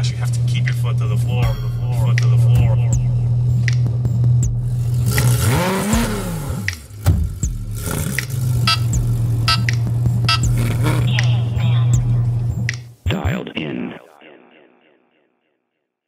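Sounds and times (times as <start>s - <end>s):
car engine droning: 4.5s - 11.3s.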